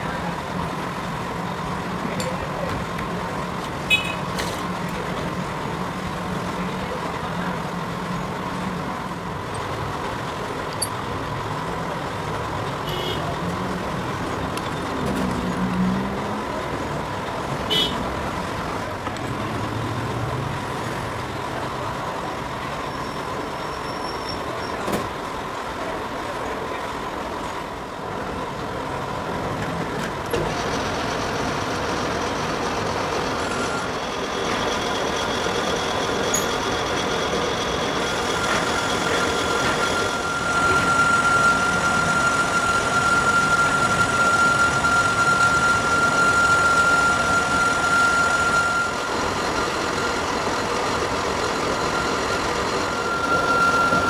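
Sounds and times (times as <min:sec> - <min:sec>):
metal lathe drone: 0:30.8 - 0:54.0
faint steady whine: 0:33.3 - 0:54.0.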